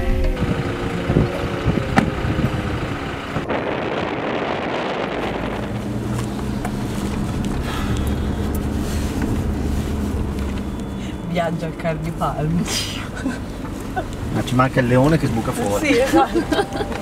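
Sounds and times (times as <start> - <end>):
wind noise: 0.0 - 10.6
low drone in cabin: 0.0 - 11.3
pickup truck engine running: 0.0 - 17.0.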